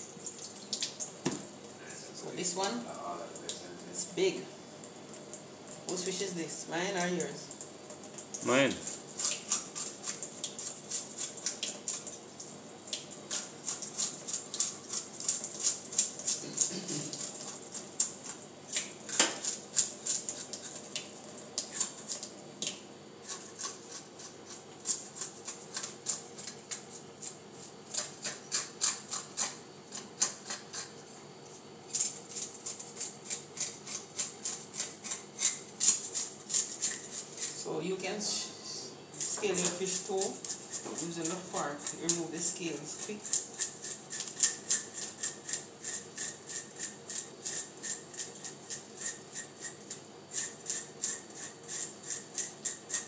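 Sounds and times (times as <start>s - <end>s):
fork scraping fish scales: 13.3s - 21.0s, 21.6s - 22.3s, 23.2s - 37.6s, 39.2s - 53.0s.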